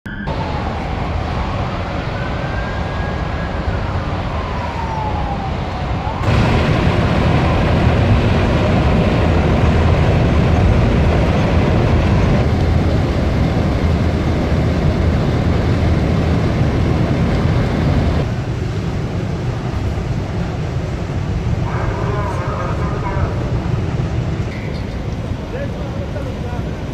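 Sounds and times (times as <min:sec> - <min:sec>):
emergency siren wailing: 0:00.1 - 0:18.3
roar of burning gas jet: 0:04.0 - 0:18.4.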